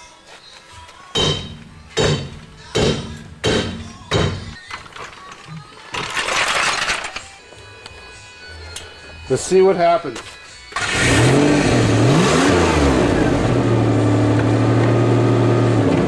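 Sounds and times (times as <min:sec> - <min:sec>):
sledgehammer hitting metal: 0:01.2 - 0:04.5.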